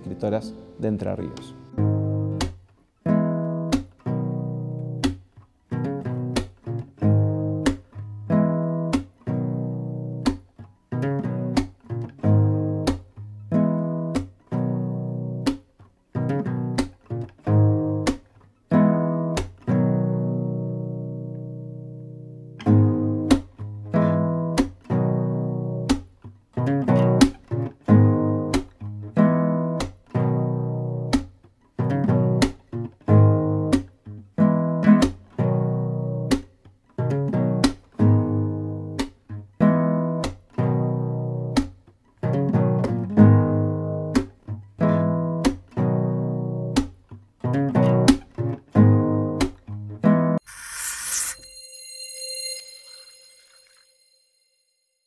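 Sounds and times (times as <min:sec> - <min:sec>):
strummed acoustic guitar chords: 0:00.0 - 0:36.4, 0:37.0 - 0:50.4.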